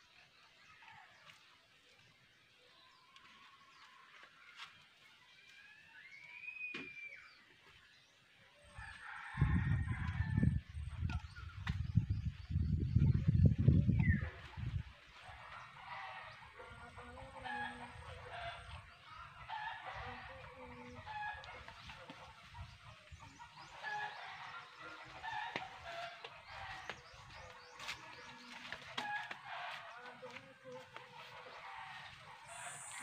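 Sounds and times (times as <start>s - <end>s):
chickens clucking: 13.6s - 33.0s.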